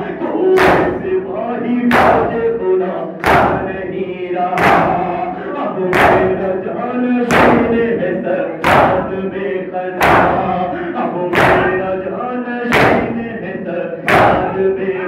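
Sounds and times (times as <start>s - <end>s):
men chanting a lament: 0.0s - 15.0s
men slapping chests in unison: 0.5s - 1.2s, 1.9s - 2.4s, 3.2s - 3.8s, 4.6s - 5.2s, 5.9s - 6.5s, 7.3s - 8.0s, 8.6s - 9.2s, 10.0s - 10.7s, 11.3s - 12.0s, 12.6s - 13.3s, 14.0s - 14.7s.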